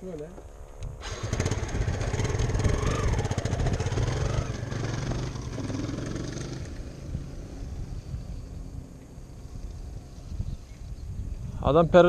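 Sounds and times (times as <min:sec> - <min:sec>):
dirt bike engine revving: 0:01.0 - 0:08.4.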